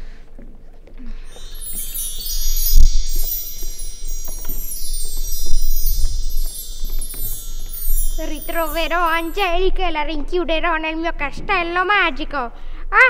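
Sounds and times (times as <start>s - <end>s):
wind chimes tinkling: 1.3s - 9.8s.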